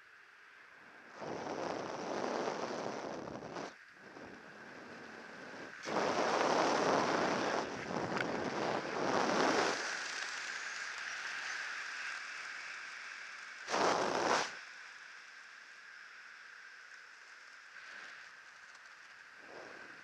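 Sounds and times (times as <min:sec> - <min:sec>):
wind rushing over microphone: 0:01.3 - 0:10.1.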